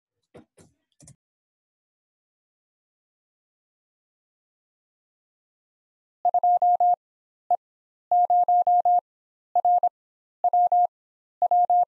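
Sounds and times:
morse code beep tone: 6.3s - 7.0s, 8.1s - 9.0s, 9.6s - 11.9s.

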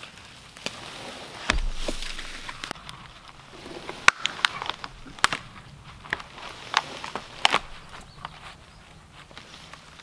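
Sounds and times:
footsteps in leaves: 0.0s - 10.0s
log dragged over leaf litter: 0.0s - 10.0s
dull thump: 1.5s - 8.6s
twigs snapping: 1.5s - 10.0s.

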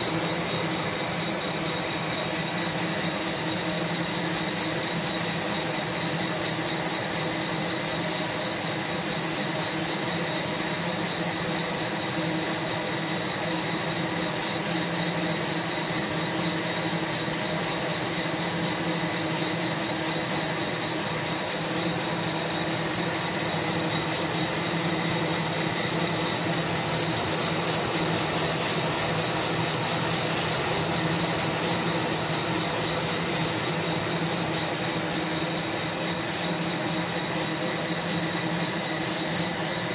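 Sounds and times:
blower hum and hot air rush: 20.6s - 39.9s
coffee beans rattling: 23.8s - 34.2s.

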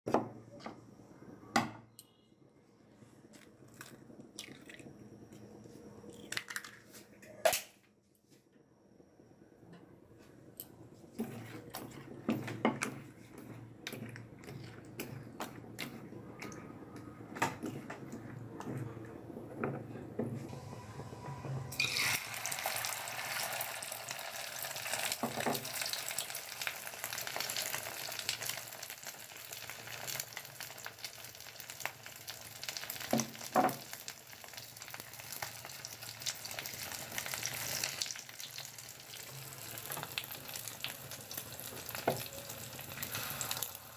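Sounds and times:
frying in hot oil sizzling: 21.7s - 43.9s.

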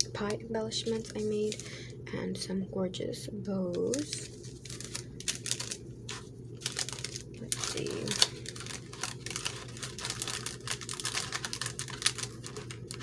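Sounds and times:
cellophane bag crinkling: 0.8s - 1.9s, 3.9s - 13.0s.

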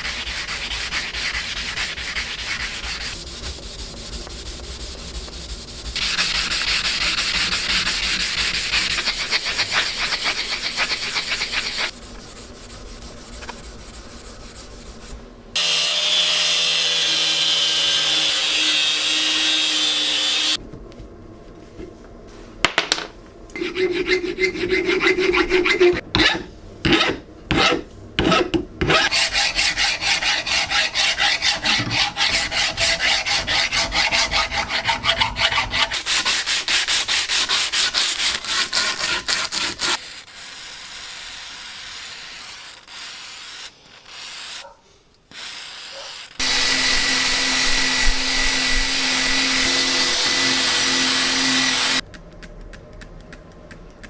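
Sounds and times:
sandpaper rubbing on metal tube: 0.0s - 15.2s, 23.6s - 26.0s, 28.9s - 44.7s
hand file rasping on metal: 6.0s - 11.9s, 23.6s - 40.3s, 45.8s - 52.0s.

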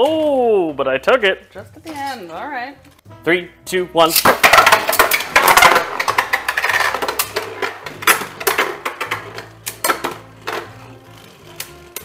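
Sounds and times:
quiet background music: 0.0s - 12.0s
spinning tops clacking together: 4.2s - 10.8s.

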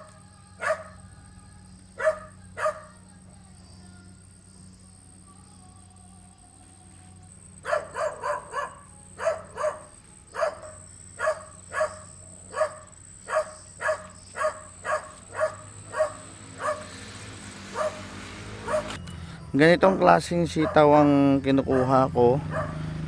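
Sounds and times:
dog barking: 0.6s - 1.0s, 2.0s - 3.0s, 7.6s - 16.9s, 17.7s - 19.0s, 19.8s - 21.0s, 21.6s - 22.9s.

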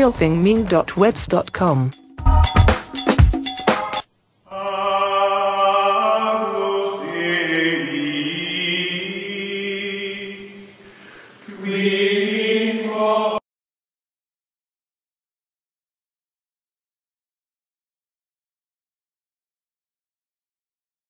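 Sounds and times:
choir-like chanted chords: 4.5s - 13.4s.

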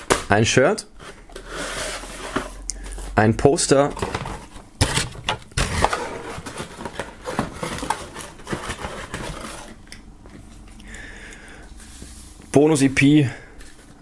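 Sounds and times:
cardboard and paper rustling: 1.0s - 3.2s, 3.8s - 9.8s.

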